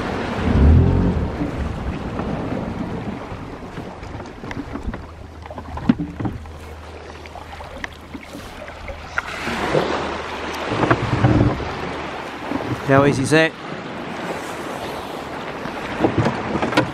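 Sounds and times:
outboard motor running: 0:00.0 - 0:13.0
water washing along hull: 0:00.0 - 0:16.9.

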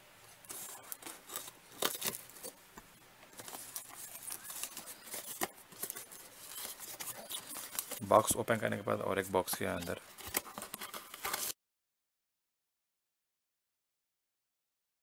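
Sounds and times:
scissors cutting cardboard: 0:00.5 - 0:02.6, 0:03.3 - 0:08.0, 0:09.6 - 0:11.6
cardboard flaps rustling: 0:03.3 - 0:08.6, 0:09.2 - 0:11.6.

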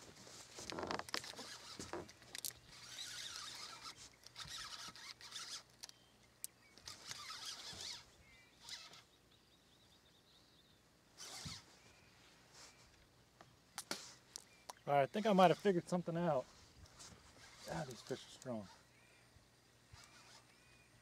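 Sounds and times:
fishing reel whirring: 0:00.6 - 0:06.0, 0:06.8 - 0:09.1, 0:11.2 - 0:11.7, 0:17.3 - 0:18.9, 0:19.9 - 0:20.8.

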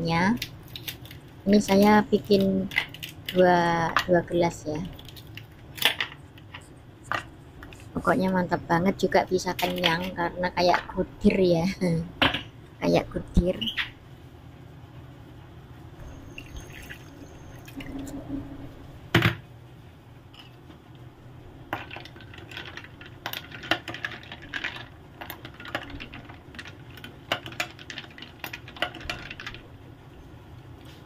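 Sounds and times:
spoon stirring ice clinking: 0:21.8 - 0:29.6.

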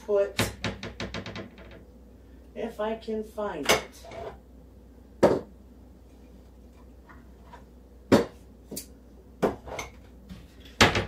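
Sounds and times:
sharp knocks in kitchen cupboard: 0:08.1 - 0:08.4, 0:10.8 - 0:11.0.

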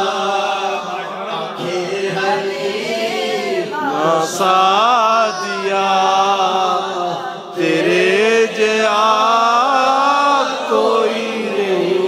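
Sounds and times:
man singing unaccompanied: 0:03.8 - 0:12.0.

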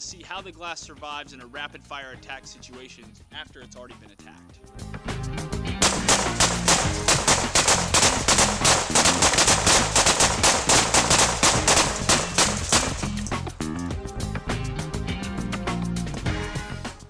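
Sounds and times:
rapid rifle fire: 0:05.8 - 0:13.2.

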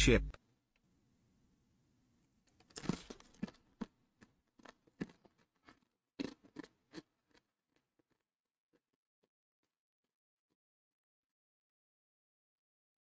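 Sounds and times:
person chewing crunchy chip: 0:02.6 - 0:08.8.

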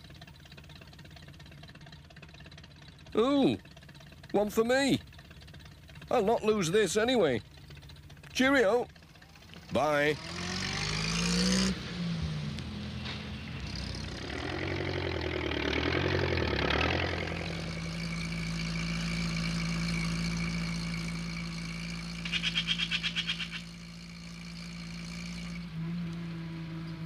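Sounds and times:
cartoon engine chugging: 0:00.0 - 0:10.5, 0:14.1 - 0:18.6, 0:22.0 - 0:24.1.

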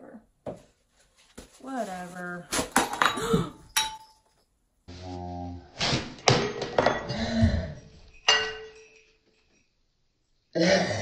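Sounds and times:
glass clinking: 0:02.8 - 0:04.5, 0:06.4 - 0:07.2, 0:07.9 - 0:09.8.

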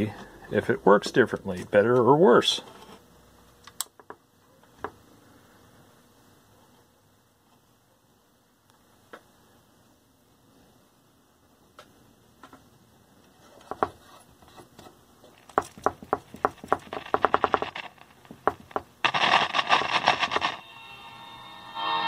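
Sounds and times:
radio speaker crackling and popping: 0:15.3 - 0:20.7
loud burst of static: 0:16.8 - 0:22.0.

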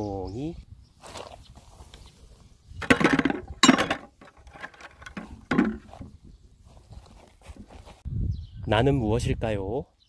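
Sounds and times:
garden tools knocking in plastic bucket: 0:02.8 - 0:06.2.

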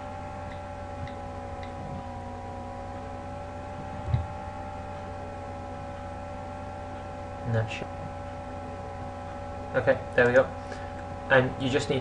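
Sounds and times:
steady tonal hum: 0:00.0 - 0:12.0
dull thump: 0:04.0 - 0:04.4.

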